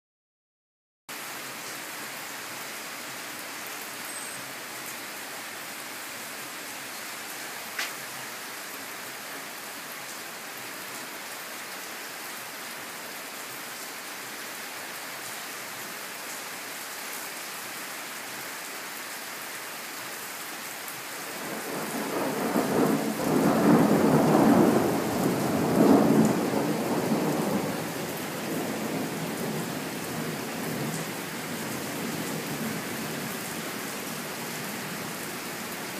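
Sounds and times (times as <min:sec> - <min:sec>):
steady rain hissing: 0:01.1 - 0:35.9
thunder rolling: 0:21.4 - 0:29.6.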